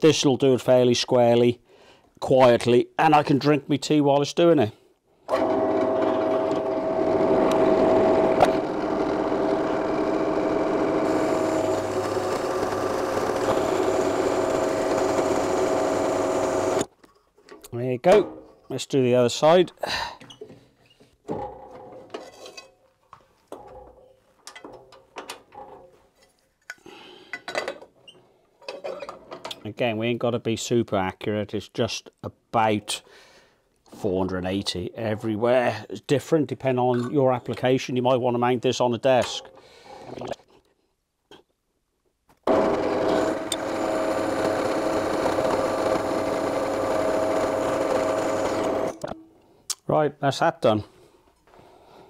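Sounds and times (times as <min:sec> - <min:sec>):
electric power tool running: 0:05.3 - 0:16.9, 0:42.4 - 0:49.2.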